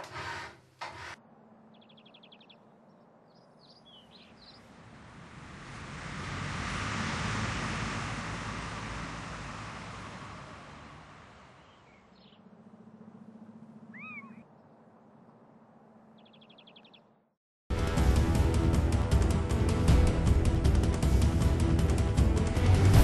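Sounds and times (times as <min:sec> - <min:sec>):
animal call like a meow: 0:13.9 - 0:14.4
music: 0:17.7 - 0:23.0.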